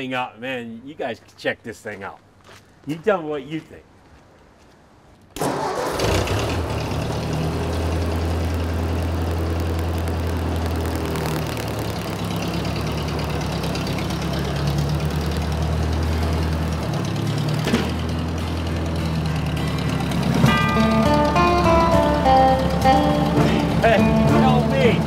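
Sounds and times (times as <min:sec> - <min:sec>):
tractor engine running: 0:05.4 - 0:25.0.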